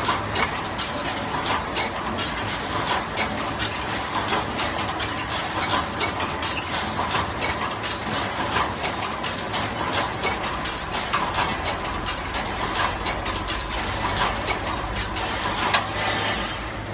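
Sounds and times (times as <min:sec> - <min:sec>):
steady mechanical din: 0:00.0 - 0:16.9
welding machine clacking: 0:00.0 - 0:16.9.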